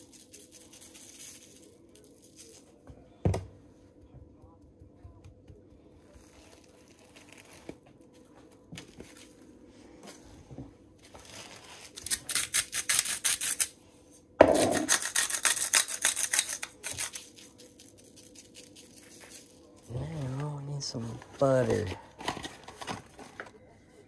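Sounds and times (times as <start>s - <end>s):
pepper grinder grinding: 11.2s - 13.8s, 14.4s - 19.7s.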